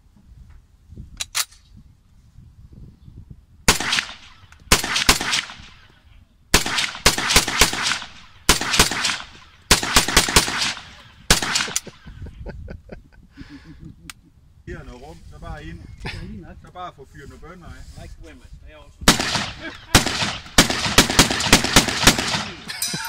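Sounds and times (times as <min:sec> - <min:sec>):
rapid rifle fire: 0:03.7 - 0:05.8, 0:06.5 - 0:11.9, 0:19.1 - 0:22.7.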